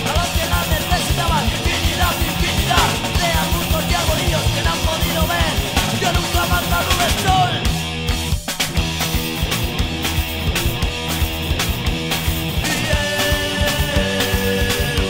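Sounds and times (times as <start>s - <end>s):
shouted vocals: 0.0s - 7.7s
distorted electric guitars: 0.0s - 15.0s
rapid drum beat: 0.0s - 15.0s.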